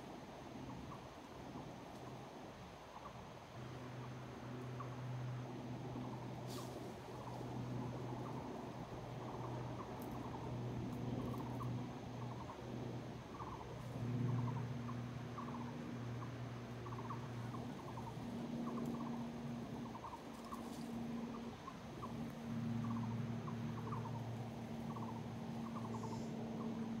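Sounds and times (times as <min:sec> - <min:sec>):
low hum: 0:03.0 - 0:27.0
squirrels chattering: 0:07.1 - 0:27.0.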